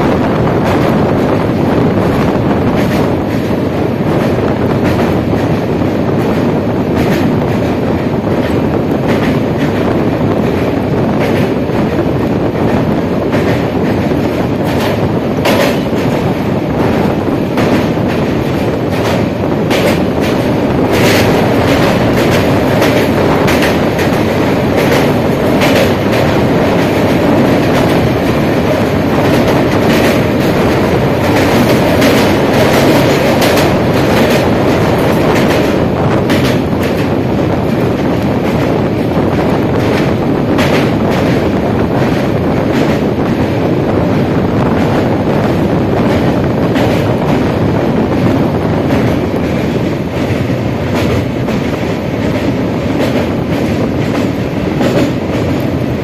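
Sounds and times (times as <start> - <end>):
passing train: 0.0 - 56.0
train wheels rumbling on rails: 0.0 - 56.0
wheel clicks and clacks: 12.7 - 38.8.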